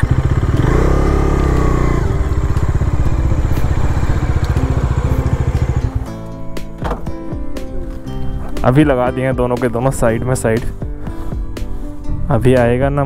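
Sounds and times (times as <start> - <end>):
motorcycle engine revving: 0.0 - 7.2.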